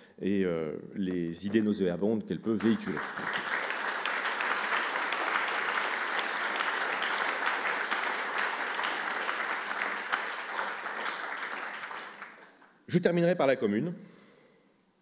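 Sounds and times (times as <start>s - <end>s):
audience applauding: 2.6s - 12.8s.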